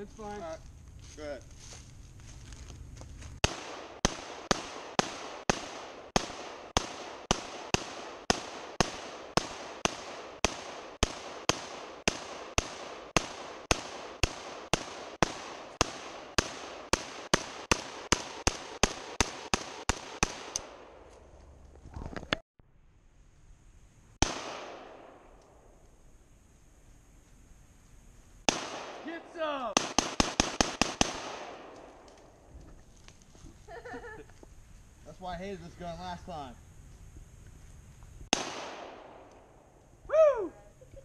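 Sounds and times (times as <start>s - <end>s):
rifle shots with echo: 3.4s - 21.0s, 24.2s - 25.4s, 28.5s - 32.1s, 38.3s - 39.5s.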